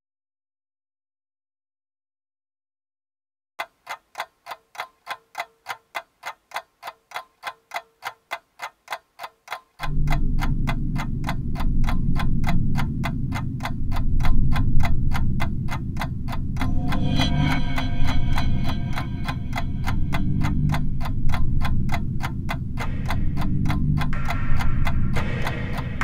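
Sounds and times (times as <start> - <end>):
clock-like ticking: 3.6 - 26.0
low rumbling drone: 9.8 - 26.0.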